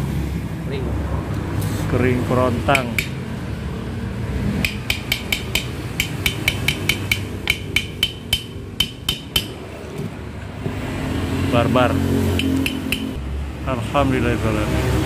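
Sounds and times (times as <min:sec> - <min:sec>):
hammer clinking on metal rod: 0:02.7 - 0:03.2, 0:04.6 - 0:09.6, 0:12.4 - 0:13.2.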